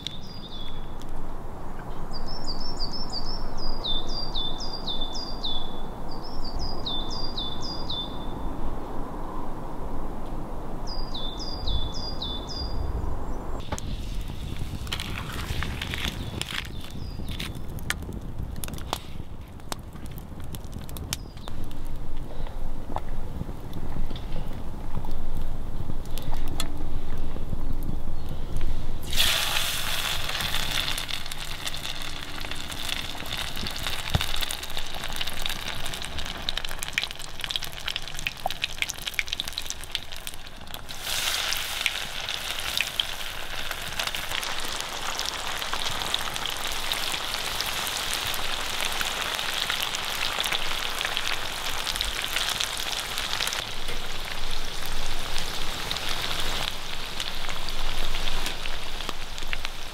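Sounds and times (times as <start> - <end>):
fish frying in hot oil: 29.0 - 59.9.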